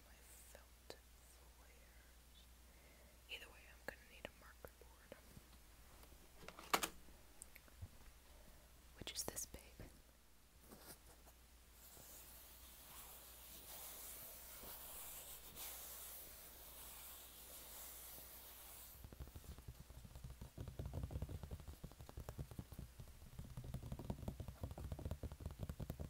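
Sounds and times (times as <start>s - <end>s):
hand rubbing a board: 10.7s - 26.0s
fingertip tapping on a board: 19.1s - 26.0s.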